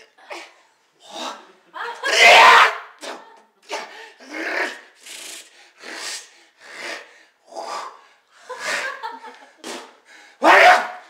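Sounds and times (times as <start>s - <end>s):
man rasping breaths: 5.0s - 10.4s.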